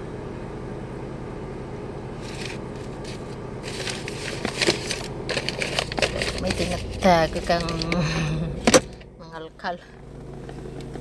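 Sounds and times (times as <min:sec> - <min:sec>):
low hum inside car: 0:00.0 - 0:11.0
paper envelope crinkling: 0:02.2 - 0:08.0.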